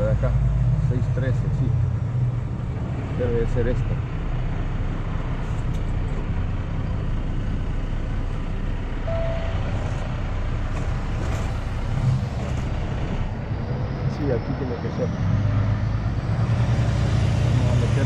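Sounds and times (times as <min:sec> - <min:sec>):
diesel truck engine rumbling: 0:00.0 - 0:18.0
short thin tone: 0:09.1 - 0:09.6.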